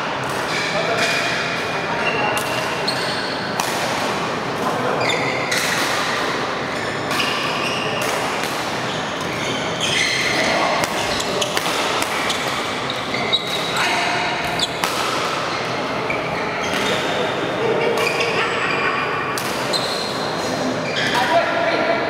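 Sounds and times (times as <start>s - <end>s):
racket striking shuttlecock: 3.6s - 4.2s, 10.8s - 12.7s, 13.4s - 15.5s
shoes squeaking on court: 5.0s - 5.8s, 8.8s - 11.6s, 12.2s - 17.0s.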